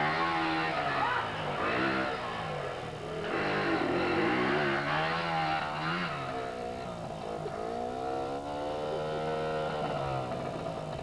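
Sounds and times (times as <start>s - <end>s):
small engine revving: 0.0s - 11.0s.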